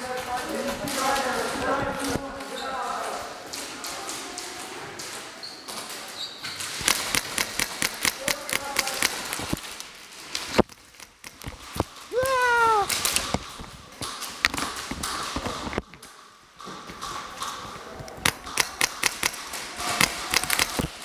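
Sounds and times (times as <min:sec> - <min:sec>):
person yelling: 0:12.1 - 0:12.9.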